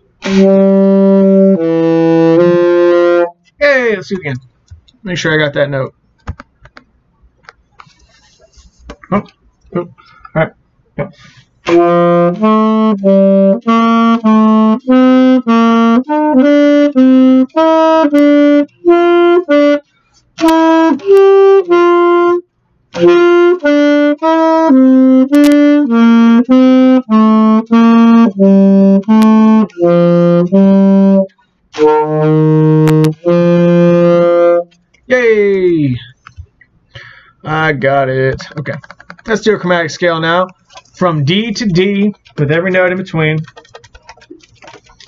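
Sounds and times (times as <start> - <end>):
alto saxophone playing a scale: 0.2 - 3.4, 11.7 - 19.8, 20.4 - 34.7.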